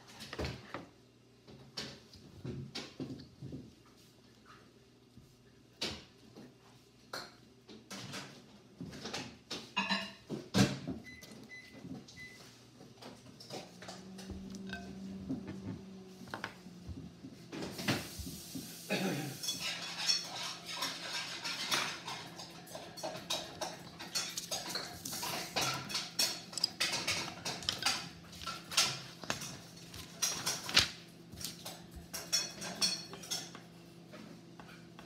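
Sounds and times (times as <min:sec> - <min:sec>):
dishes and utensils clinking: 0:09.1 - 0:10.4, 0:13.1 - 0:15.7, 0:19.0 - 0:30.8, 0:31.4 - 0:33.7.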